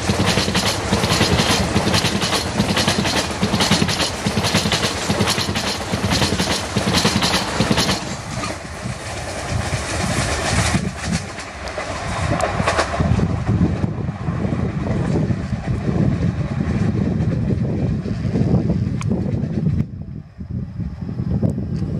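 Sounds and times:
train wheels clattering over joints: 0.0 - 13.2
train rumble: 0.0 - 21.9.

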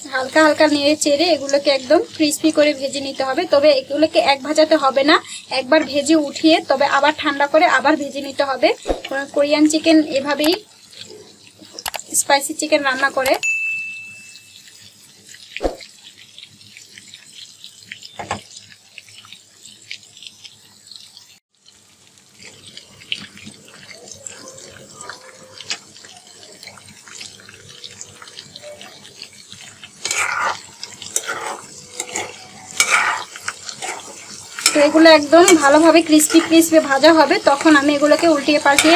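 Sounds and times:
oil bubbling and sizzling: 0.0 - 38.9
ladle scraping and splashing: 22.4 - 38.9.

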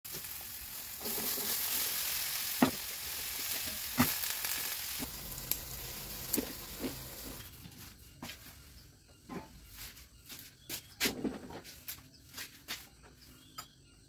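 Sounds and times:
food sizzling in hot oil: 0.1 - 7.5.

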